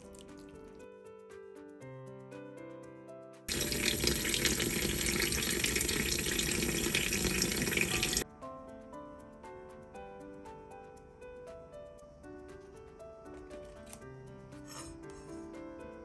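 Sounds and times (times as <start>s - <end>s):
light plucked background music: 0.0s - 16.0s
tap water pouring: 3.5s - 8.2s.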